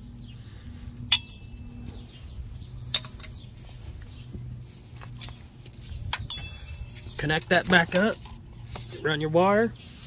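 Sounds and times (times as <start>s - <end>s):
low steady hum: 0.0s - 10.0s
sharp metallic clinks: 1.1s - 1.8s, 6.1s - 6.9s.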